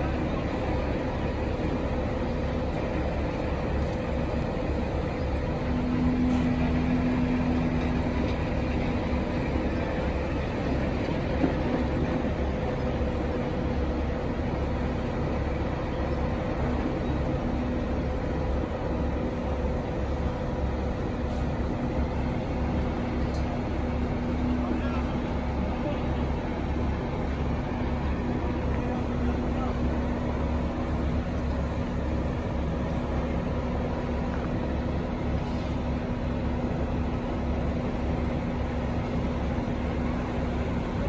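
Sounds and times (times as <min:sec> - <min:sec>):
heavy diesel engine running: 0:00.0 - 0:41.0.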